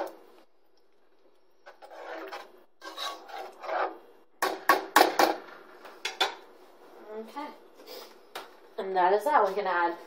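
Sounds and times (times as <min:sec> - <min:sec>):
spoon stirring thick sauce: 0:01.6 - 0:04.0.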